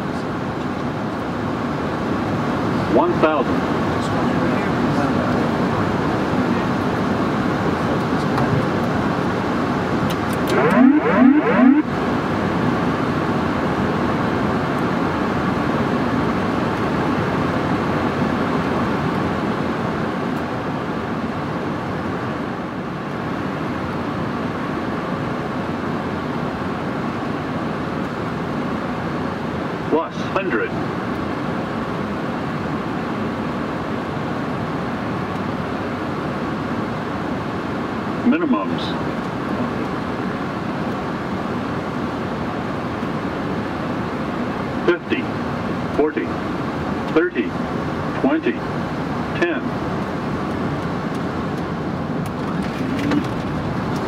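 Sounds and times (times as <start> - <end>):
cockpit airflow and engine noise: 0.0 - 54.0
rising whoop warning tones: 10.5 - 11.9.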